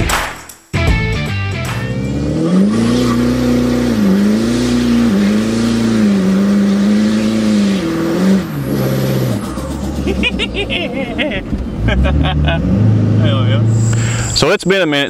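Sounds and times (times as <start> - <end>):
diesel engine pulling hard: 1.9 - 14.6
turbo rushing hiss: 13.7 - 14.4.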